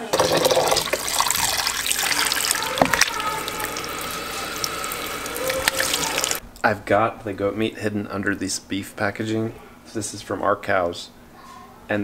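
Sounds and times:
tap water splashing into bowl: 0.1s - 6.4s.

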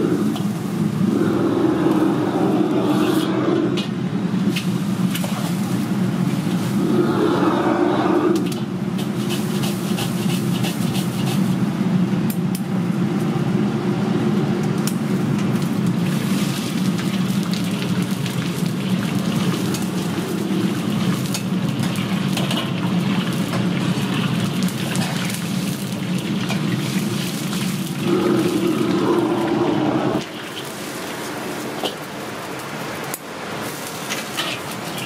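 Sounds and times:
gas burner rushing: 0.0s - 35.0s
oil sizzling in wok: 8.4s - 11.7s, 14.9s - 29.5s, 30.2s - 35.0s
brush and ladle scraping wok: 8.5s - 11.6s, 34.0s - 35.0s.

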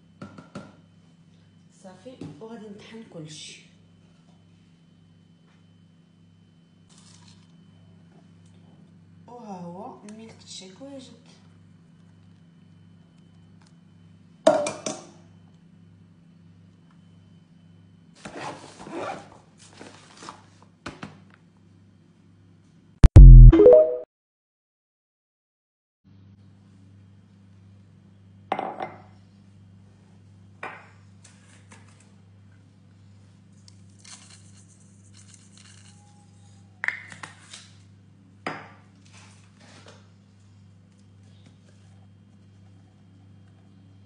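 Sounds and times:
short synthesizer jingle: 23.0s - 24.1s.

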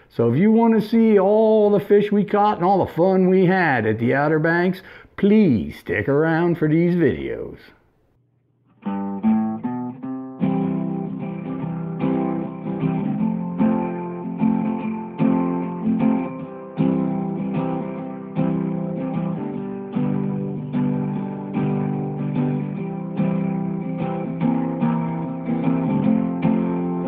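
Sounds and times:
guitar plucking and strumming: 8.6s - 27.0s.

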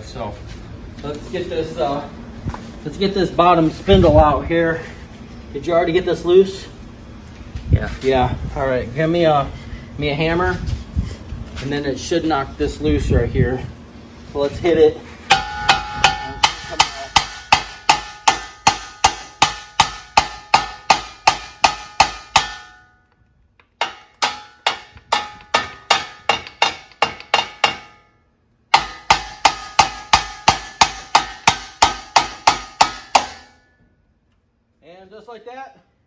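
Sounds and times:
hammer striking metal: 15.3s - 23.1s, 23.7s - 33.8s.

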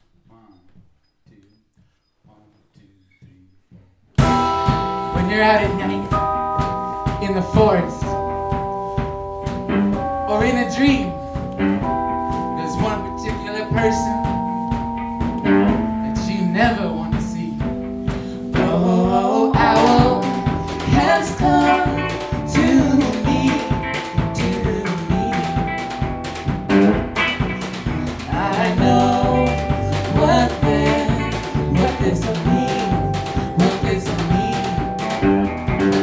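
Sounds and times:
small band playing slow song: 4.2s - 36.0s
person singing: 12.5s - 14.5s, 15.5s - 26.0s, 27.2s - 35.3s.

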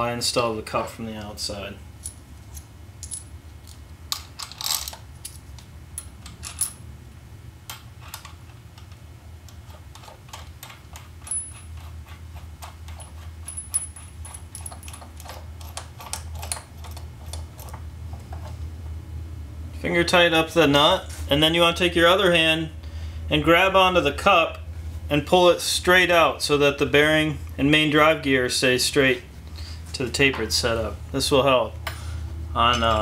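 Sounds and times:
steady low hum: 0.0s - 33.0s
small steel parts clinking: 2.0s - 5.4s, 6.0s - 6.8s, 11.2s - 11.9s, 12.9s - 17.0s.

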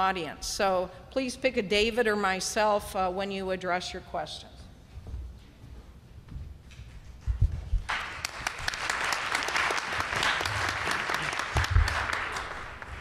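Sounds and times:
audience applauding: 7.9s - 13.0s.

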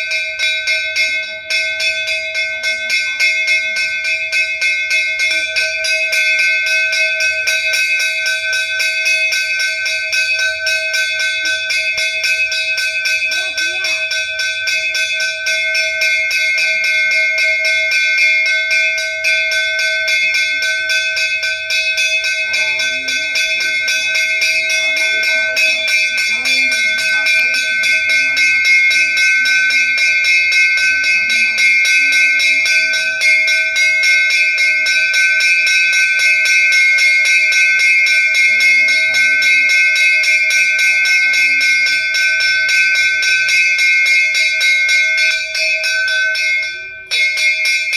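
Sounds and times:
temple bell ringing: 0.0s - 47.9s
faint voices: 10.8s - 14.8s, 20.2s - 33.8s, 38.3s - 43.8s.

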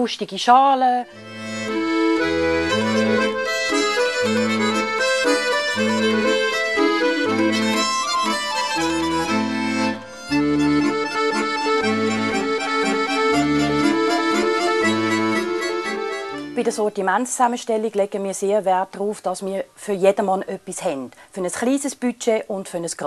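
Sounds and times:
accordion melody: 0.8s - 17.2s
alternating bass line: 1.2s - 16.6s.

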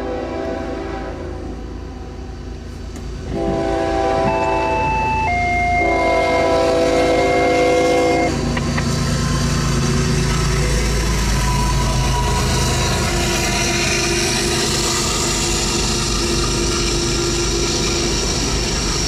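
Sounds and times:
locomotive air horn: 0.0s - 1.7s, 3.2s - 8.6s
freight train rumbling past: 0.0s - 19.0s.

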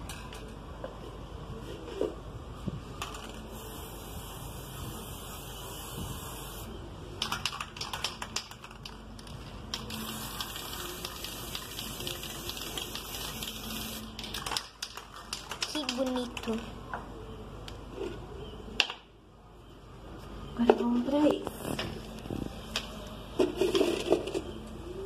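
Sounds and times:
spray can rattling: 3.0s - 4.2s, 7.2s - 16.6s
spray paint hissing: 3.2s - 7.9s, 9.7s - 15.0s.

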